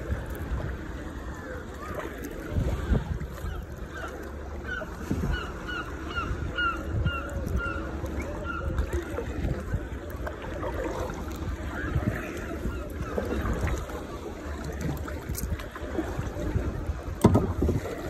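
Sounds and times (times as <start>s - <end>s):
paddle strokes splashing water: 0.0s - 18.0s
wind rumble on microphone: 0.0s - 18.0s.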